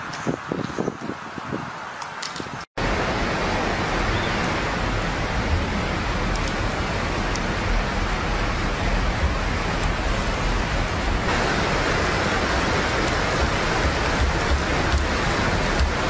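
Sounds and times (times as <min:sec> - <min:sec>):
fire crackling: 0:01.9 - 0:16.0
meat sizzling over fire: 0:09.3 - 0:16.0.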